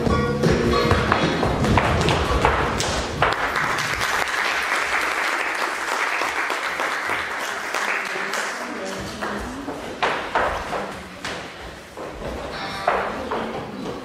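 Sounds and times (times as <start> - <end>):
dance music: 0.0 - 3.9
audience applauding: 2.8 - 9.4.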